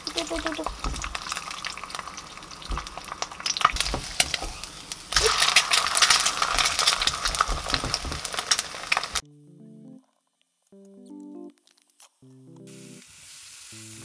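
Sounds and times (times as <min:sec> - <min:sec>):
egg sizzling in a pan: 0:00.0 - 0:09.2, 0:12.7 - 0:14.0.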